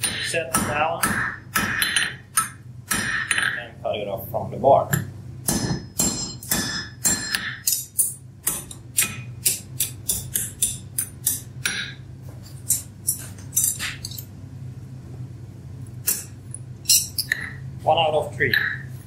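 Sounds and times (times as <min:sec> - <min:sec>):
hammer striking iron on anvil: 0:00.0 - 0:03.6, 0:04.9 - 0:12.0.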